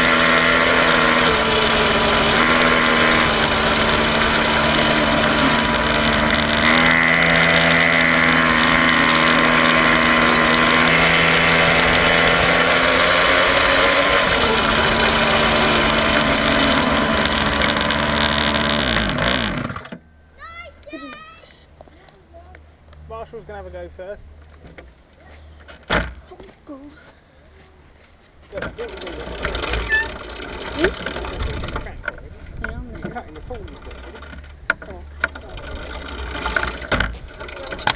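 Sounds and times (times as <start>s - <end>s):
quad bike engine revving: 0.0s - 20.0s, 28.7s - 32.0s, 33.4s - 37.9s.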